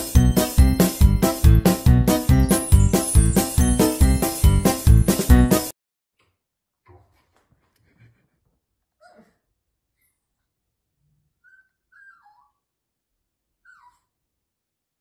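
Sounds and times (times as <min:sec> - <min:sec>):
small dog whimpering: 0:09.0 - 0:09.4, 0:11.4 - 0:12.7, 0:13.6 - 0:14.1.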